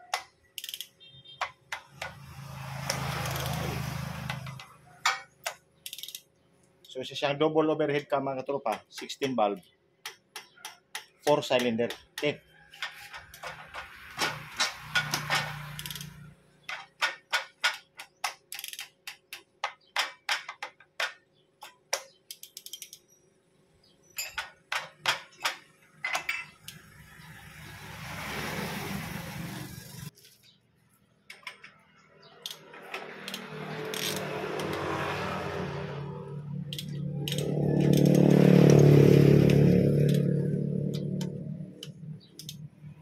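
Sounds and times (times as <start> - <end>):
sharp metallic clicks of gears: 0.0 - 4.8, 5.4 - 7.0, 8.7 - 23.1, 32.3 - 43.0.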